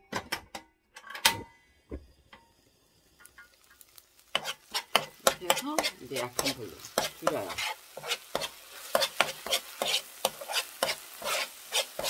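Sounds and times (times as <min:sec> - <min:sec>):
spatula scraping frying pan: 0:03.3 - 0:12.0.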